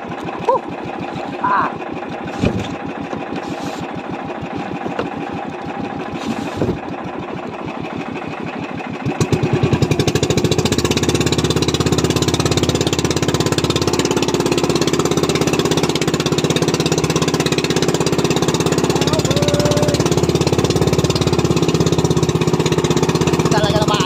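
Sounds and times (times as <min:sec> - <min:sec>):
boat engine throbbing: 0:00.0 - 0:24.0.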